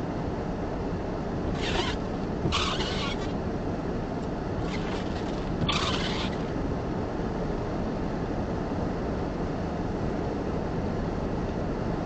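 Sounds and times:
vehicle engine idling: 0:01.0 - 0:07.5
short hissing swishes: 0:01.6 - 0:03.4, 0:04.6 - 0:06.5.

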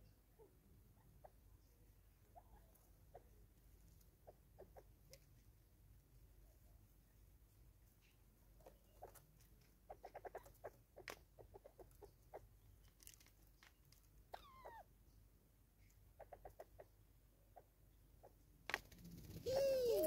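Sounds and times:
bird clucking: 0:04.2 - 0:05.2, 0:08.6 - 0:12.5, 0:16.2 - 0:18.4, 0:19.4 - 0:20.0.

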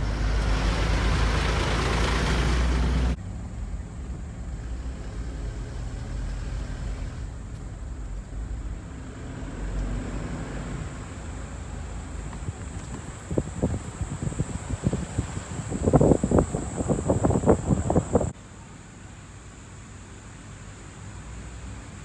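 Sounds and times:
car engine and road rumble: 0:00.0 - 0:22.0
loud noise cutting off: 0:12.3 - 0:18.3.

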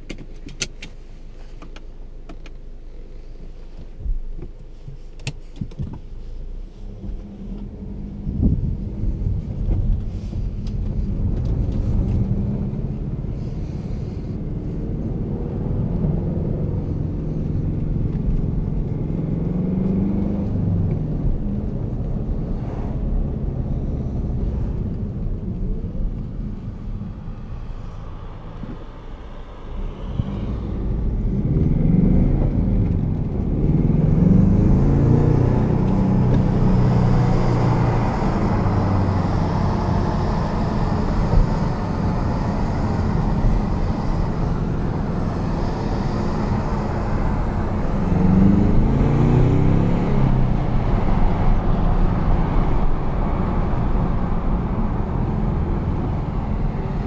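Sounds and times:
car engine from inside cabin: 0:00.0 - 0:57.0
tyre and wind noise: 0:07.0 - 0:13.3.

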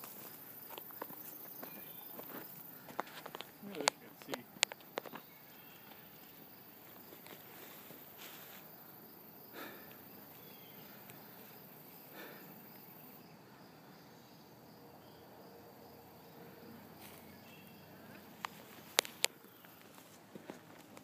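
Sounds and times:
insects trilling: 0:00.0 - 0:21.0
soft rustling: 0:06.0 - 0:08.7, 0:18.1 - 0:21.0.

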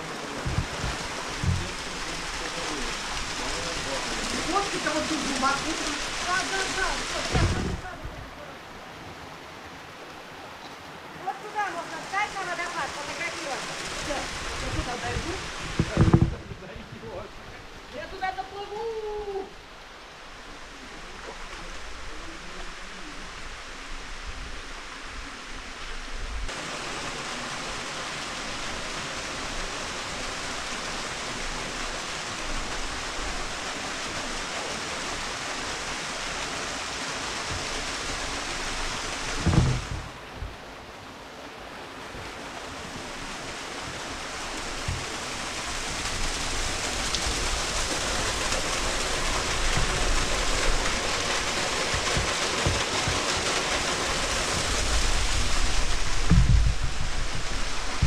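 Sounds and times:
rushing mountain water: 0:00.0 - 0:58.0
loud knock: 0:15.7 - 0:16.6, 0:39.4 - 0:40.6, 0:56.1 - 0:58.0.

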